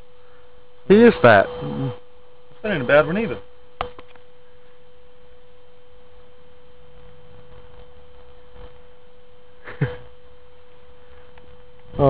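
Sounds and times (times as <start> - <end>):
steady single-pitch hum: 0.0 - 12.0.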